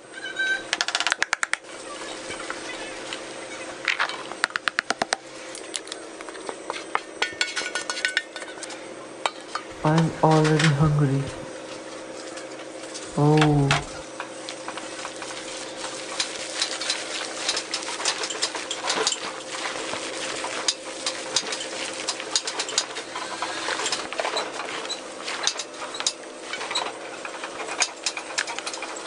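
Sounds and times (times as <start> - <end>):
steady background hum: 0.0 - 29.0.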